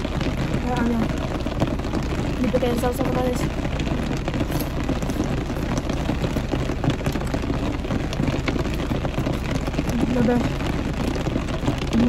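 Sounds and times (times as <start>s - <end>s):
rain on car roof: 0.0s - 12.0s
raindrop ticks: 0.0s - 12.0s.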